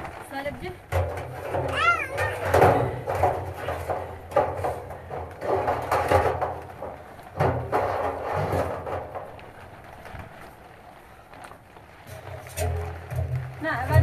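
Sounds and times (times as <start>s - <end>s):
metal pipe knocking and scraping: 0.9s - 9.4s, 12.1s - 14.0s.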